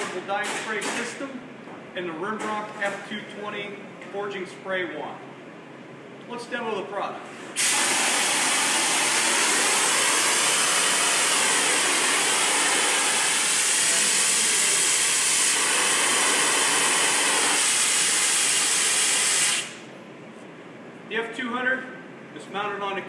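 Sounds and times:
spray wand hissing air: 0:07.6 - 0:19.8.

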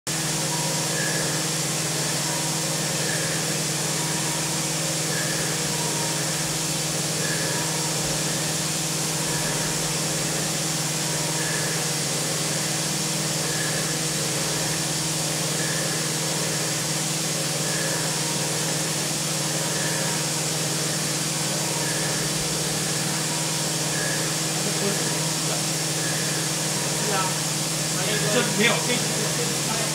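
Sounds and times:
milling machine hum and hiss: 0:00.1 - 0:29.9.

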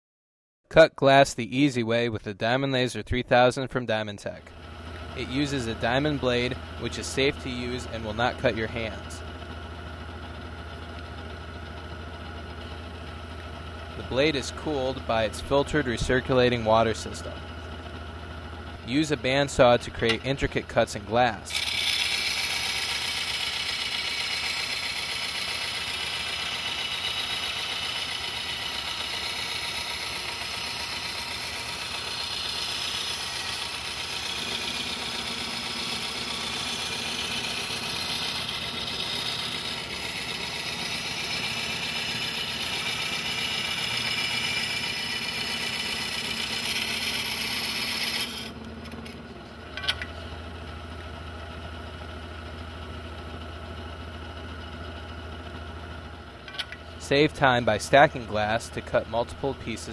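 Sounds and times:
saw motor hum: 0:04.4 - 0:52.0
saw blade grinding glass: 0:21.5 - 0:48.6.

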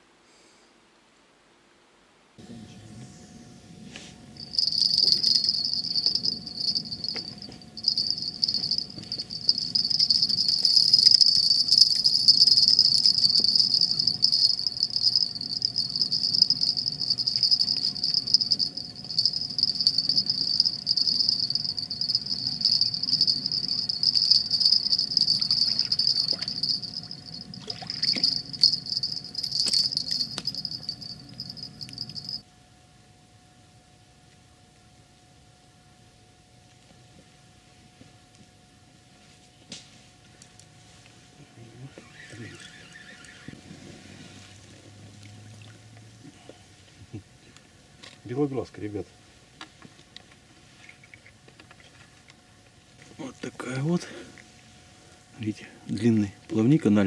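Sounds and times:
crickets trilling: 0:04.4 - 0:32.4.

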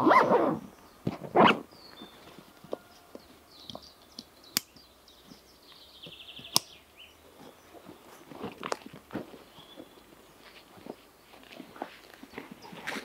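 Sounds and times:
footsteps on dry leaf litter: 0:07.3 - 0:13.0.

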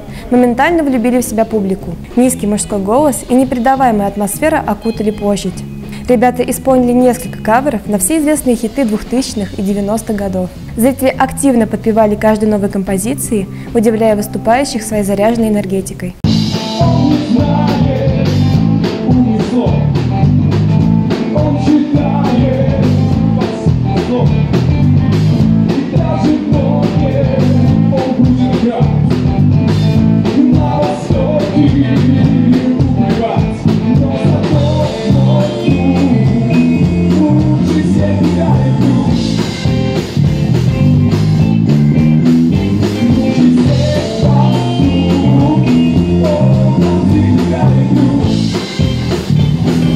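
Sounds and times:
live rock band playing: 0:02.0 - 0:07.6, 0:16.2 - 0:49.9
man singing: 0:16.4 - 0:20.3, 0:21.0 - 0:24.6, 0:25.4 - 0:39.8, 0:42.6 - 0:48.7.

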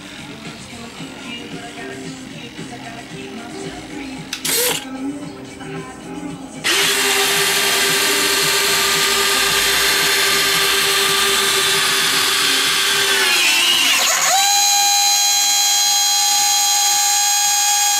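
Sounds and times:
landing gear motor whining: 0:06.6 - 0:17.9.

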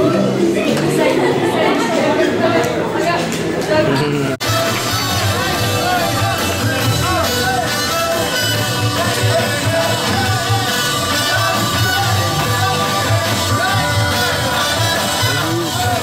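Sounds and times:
upbeat rock music over loudspeakers: 0:04.4 - 0:16.0.

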